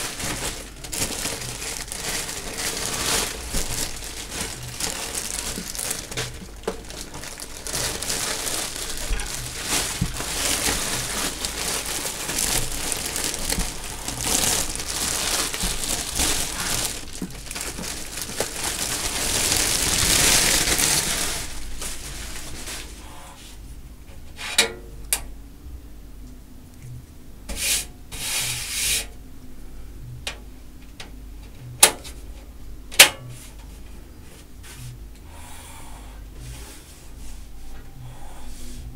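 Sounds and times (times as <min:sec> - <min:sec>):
plastic bag rustling: 0:00.0 - 0:23.4.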